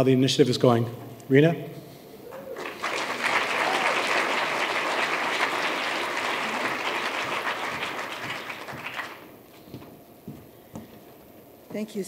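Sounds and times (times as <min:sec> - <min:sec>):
audience applauding: 0:02.3 - 0:09.4.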